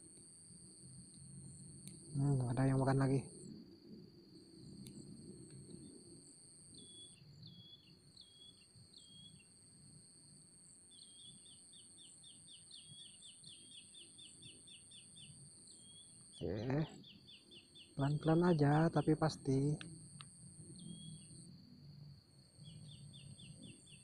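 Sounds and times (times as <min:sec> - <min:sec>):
high-pitched insect buzz: 0:00.0 - 0:24.0
small bird chirping: 0:06.7 - 0:09.5, 0:10.9 - 0:21.5, 0:22.5 - 0:24.0.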